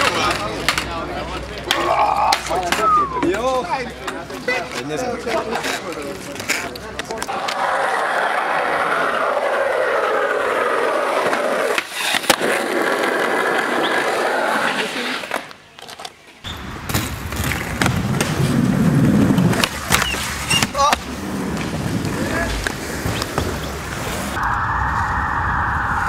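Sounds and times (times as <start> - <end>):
skateboard wheels on asphalt: 0.0 - 26.0
skateboard wheels on smooth ramp: 5.2 - 15.5, 16.4 - 26.0.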